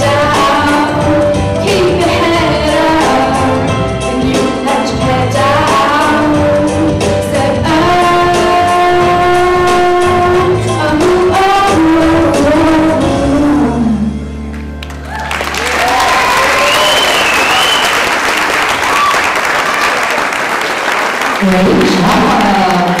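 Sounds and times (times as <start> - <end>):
girl singing into a microphone: 0.0 - 14.0
pop backing track with beat: 0.0 - 14.2.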